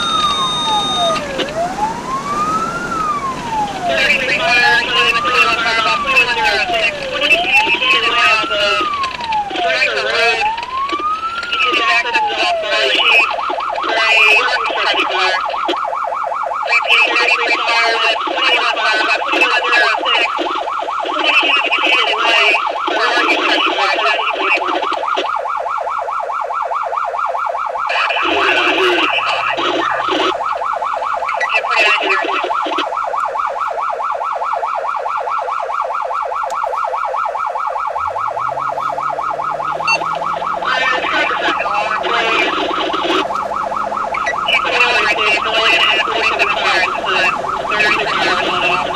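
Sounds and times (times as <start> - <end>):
electronic siren yelping: 0.0 - 48.9
vehicle engine accelerating: 37.9 - 44.5.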